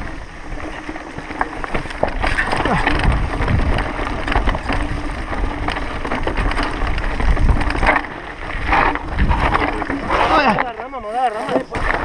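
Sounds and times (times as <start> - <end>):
mountain bike rattling over rock: 0.0 - 12.0
wind on microphone: 1.8 - 10.6.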